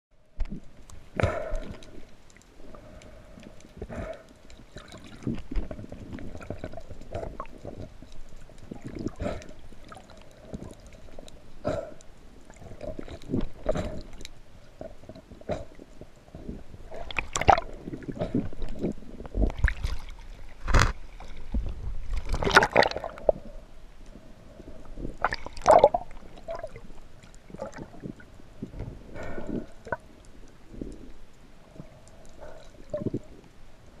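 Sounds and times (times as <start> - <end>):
faint steady hum: 0.2 - 34.0
water gurgling underwater: 3.8 - 23.7, 24.9 - 31.1, 32.4 - 33.5.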